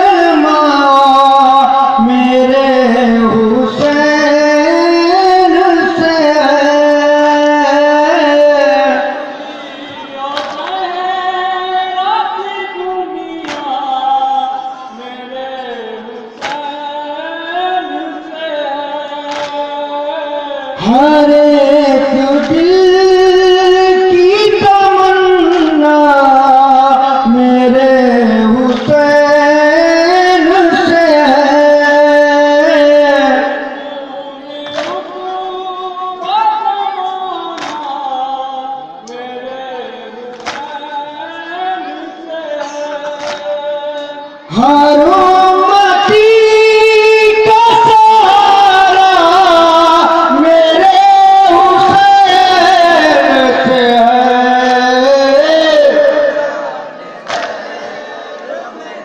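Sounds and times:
devotional singing: 0.0 - 59.0.

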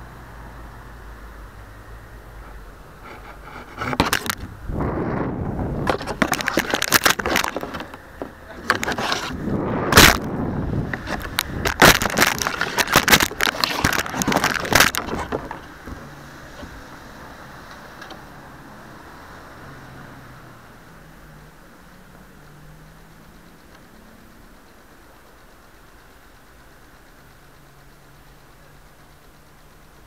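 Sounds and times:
rushing and rattling: 2.5 - 17.4
object crashing through twigs: 8.7 - 10.4, 11.0 - 15.4.

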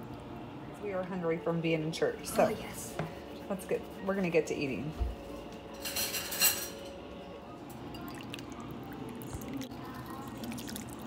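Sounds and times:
soup sloshing and dripping: 8.0 - 11.0.

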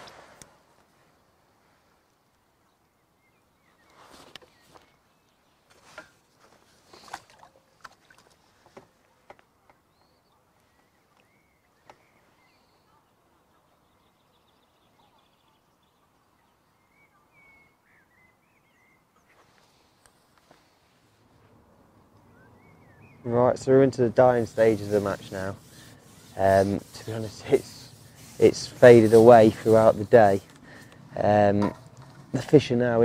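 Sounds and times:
bird chirps: 9.8 - 19.6, 22.2 - 23.3.

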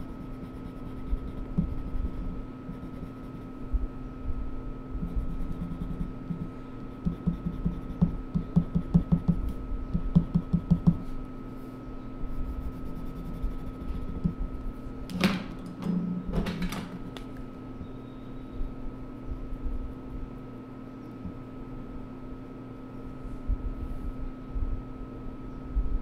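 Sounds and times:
pencil scratching on paper: 0.0 - 3.5, 5.0 - 9.3, 12.3 - 14.4.

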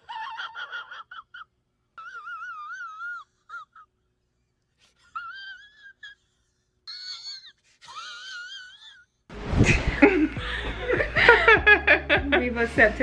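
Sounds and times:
music: 9.3 - 13.0.

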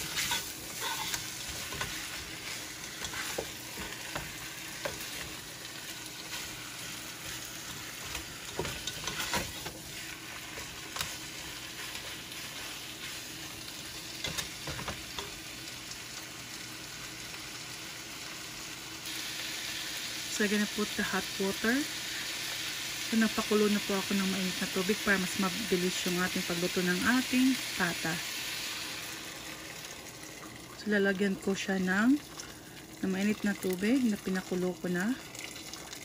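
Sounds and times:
spatula scraping and knocking pot: 0.0 - 5.4, 7.2 - 11.2
meat sizzling in oil: 0.0 - 36.0.

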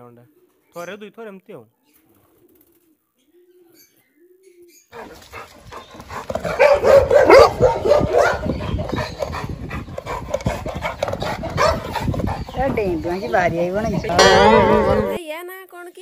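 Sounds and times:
pigeons cooing softly: 0.2 - 0.8, 1.7 - 15.2
dogs barking loudly: 5.0 - 15.2.

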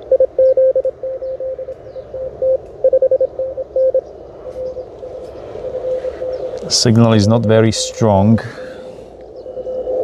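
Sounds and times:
morse code tone: 0.0 - 8.2
radio band hiss: 4.4 - 9.2.

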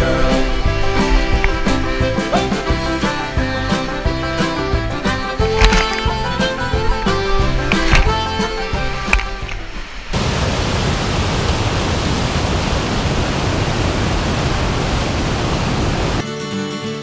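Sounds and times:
music: 0.0 - 10.1, 16.2 - 17.0
water rushing in river rapids: 0.0 - 16.2.

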